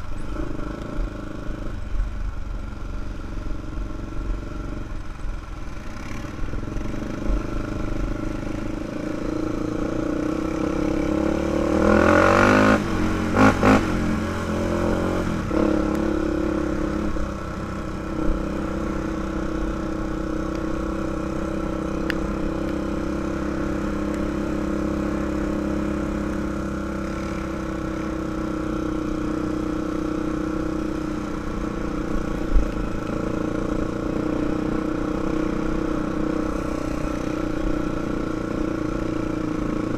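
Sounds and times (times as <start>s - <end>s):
atv engine revving: 0.1s - 39.9s.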